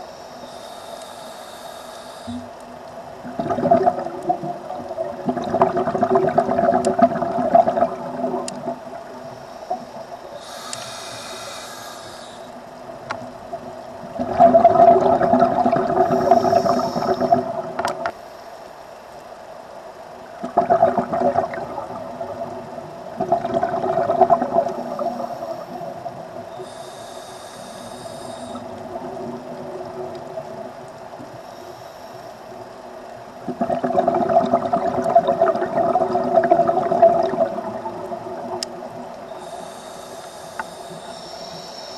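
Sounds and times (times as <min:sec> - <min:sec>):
hissing regulator inhale: 0:00.0 - 0:02.6, 0:09.2 - 0:12.6, 0:16.0 - 0:18.6, 0:24.7 - 0:28.8, 0:31.4 - 0:32.6, 0:39.3 - 0:41.9
bubbling exhale underwater: 0:03.2 - 0:09.0, 0:14.2 - 0:18.1, 0:20.4 - 0:26.9, 0:33.4 - 0:39.9.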